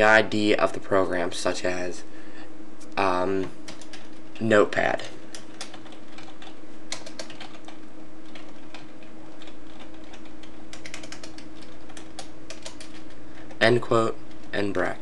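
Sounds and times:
steady low hum: 0.0s - 15.0s
keyboard keys clicking: 3.7s - 4.5s, 5.3s - 13.6s.

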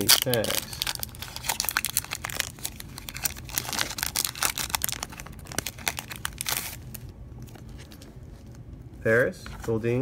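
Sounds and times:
foil wrapper crinkling and tearing: 0.0s - 8.0s.

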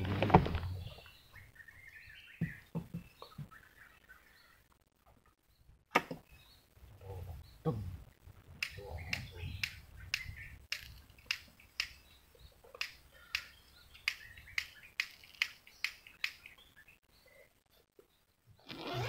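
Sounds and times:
sharp clicks: 8.6s - 12.0s, 12.7s - 16.6s.

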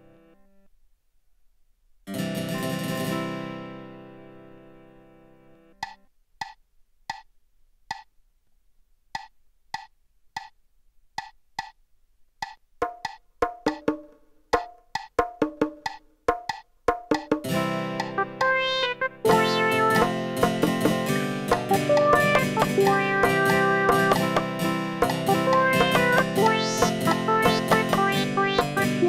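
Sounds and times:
pitched percussion knocks: 17.2s - 29.0s.

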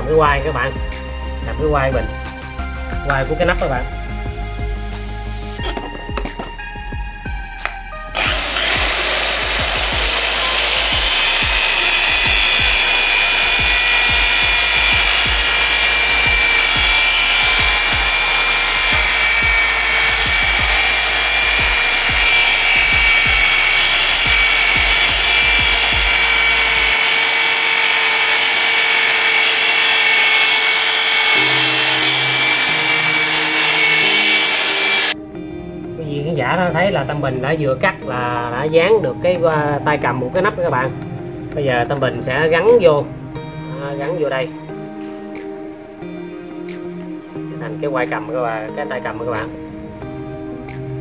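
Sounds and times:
electric drill whining: 7.5s - 35.2s
disc grinding coconut shell: 8.2s - 35.2s.

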